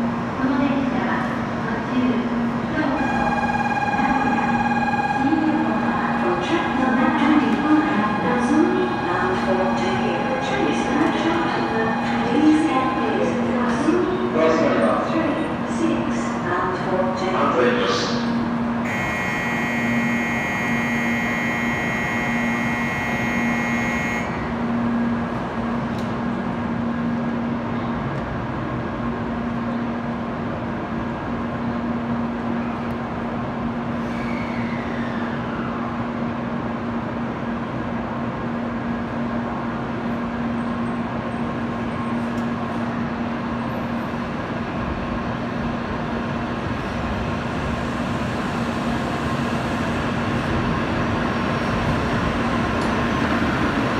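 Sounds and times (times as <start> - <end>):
train humming at platform: 0.0 - 53.9
electronic departure bell chord: 18.9 - 24.3
short falling whine: 18.9 - 24.6.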